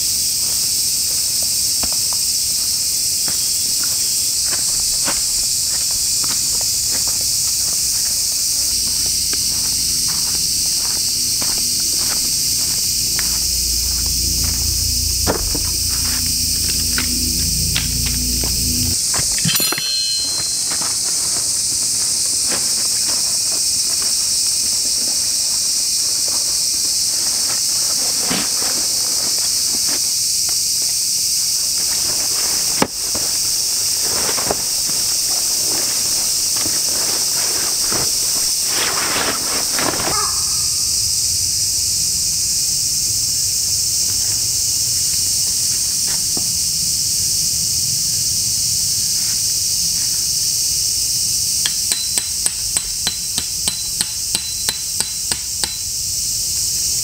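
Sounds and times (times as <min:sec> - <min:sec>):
footsteps rustling on forest floor: 0:00.0 - 0:30.7, 0:31.4 - 0:40.7
cicadas chorus: 0:00.0 - 0:57.0.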